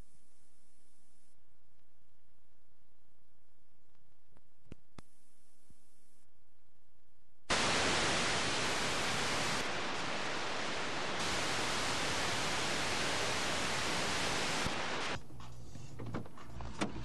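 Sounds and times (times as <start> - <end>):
loud static hiss: 7.5 - 15.2.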